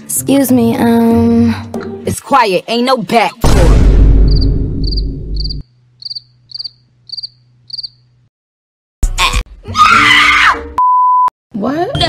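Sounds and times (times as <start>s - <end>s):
cricket chirping: 4.3s - 8.1s
woman screaming: 9.7s - 10.7s.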